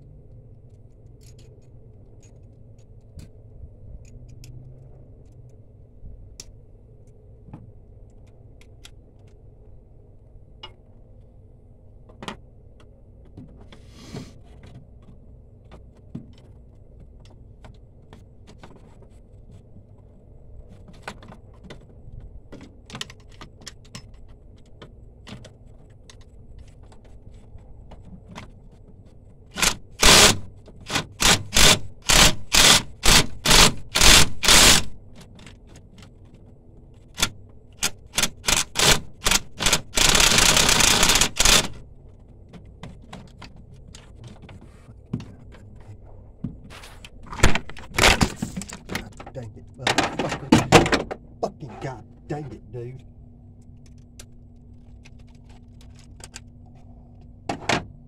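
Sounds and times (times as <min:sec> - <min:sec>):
ratchet wrench clattering: 0:29.6 - 0:30.4, 0:31.2 - 0:34.9, 0:37.8 - 0:41.8
tool clicks: 0:29.6 - 0:35.0, 0:37.2 - 0:41.8.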